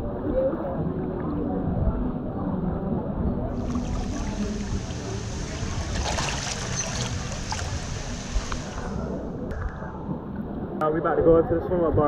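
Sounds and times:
water sloshing and splashing: 0:03.5 - 0:09.0.

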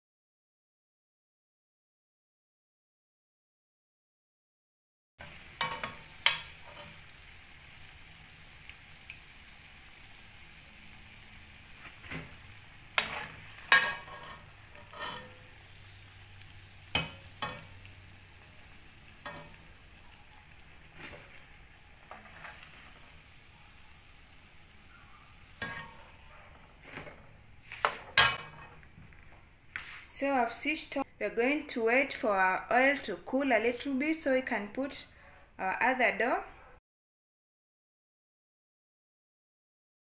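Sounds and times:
oil sizzling in a pan: 0:05.2 - 0:30.7
metal spoon clinking against pan: 0:05.6 - 0:07.0, 0:13.0 - 0:15.6, 0:16.9 - 0:17.8, 0:19.2 - 0:19.6, 0:25.6 - 0:26.2, 0:28.2 - 0:28.8.

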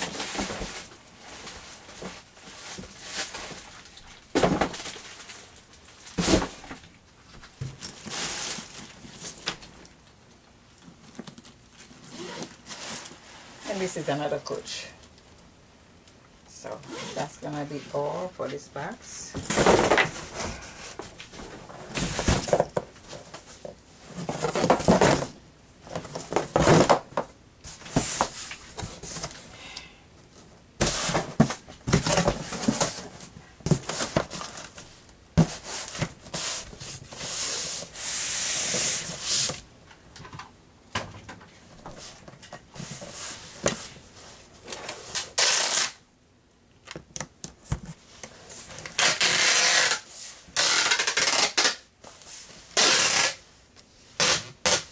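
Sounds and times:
packing tape gun screech: 0:45.2 - 0:46.0, 0:49.0 - 0:51.8, 0:52.8 - 0:53.4.

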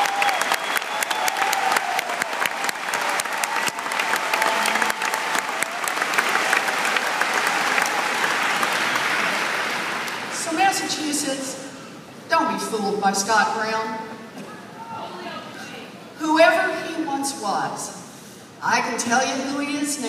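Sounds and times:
crowd applauding: 0:00.0 - 0:10.6.

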